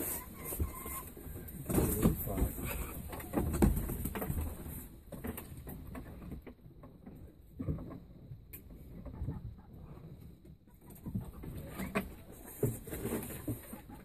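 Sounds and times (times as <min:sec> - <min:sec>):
rustling in wood chips: 0:00.0 - 0:02.9
hens clucking: 0:00.0 - 0:04.6, 0:08.8 - 0:14.0.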